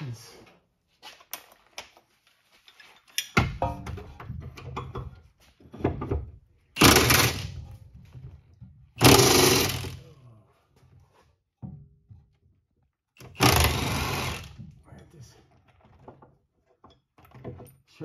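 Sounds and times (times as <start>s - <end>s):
impact wrench rattling: 6.8s - 7.7s, 9.0s - 10.0s, 13.2s - 14.7s.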